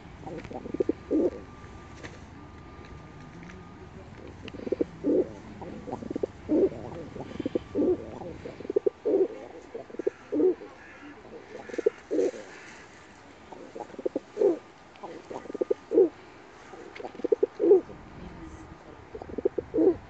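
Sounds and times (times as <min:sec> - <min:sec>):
pigeon cooing: 0:00.0 - 0:01.5, 0:04.3 - 0:12.6, 0:13.5 - 0:18.0, 0:19.2 - 0:20.0.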